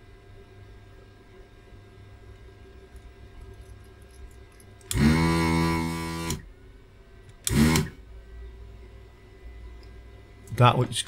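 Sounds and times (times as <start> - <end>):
desoldering pump running: 2.8 - 6.5, 7.3 - 8.0.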